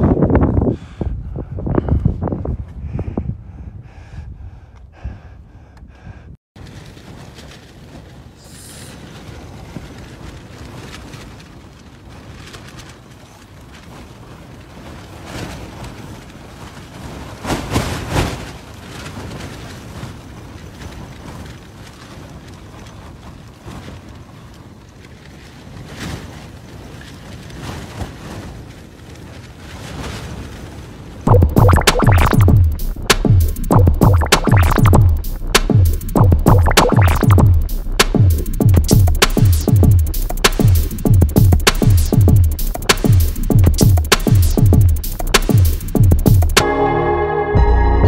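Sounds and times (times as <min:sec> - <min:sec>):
wind buffeting a tent: 0:00.0 - 0:31.3
tent fabric shaking: 0:06.6 - 0:46.6.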